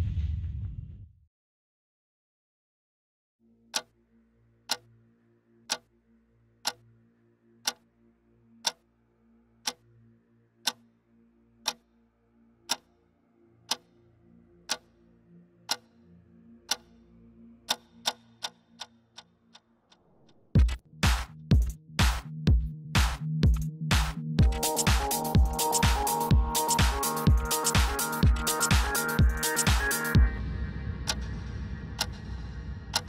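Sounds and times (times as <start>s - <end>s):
clock-like ticks: 3.7s - 3.9s, 4.7s - 4.9s, 5.7s - 5.9s, 6.6s - 6.9s, 7.6s - 7.8s, 8.6s - 8.8s, 9.6s - 9.8s, 10.6s - 10.8s, 11.6s - 11.8s, 12.7s - 12.9s, 13.7s - 13.9s, 14.7s - 14.9s, 15.7s - 16.0s, 16.7s - 16.9s, 17.6s - 22.3s, 23.0s - 30.3s, 31.0s - 31.4s, 32.0s - 33.0s
faint low drone: 30.2s - 33.0s.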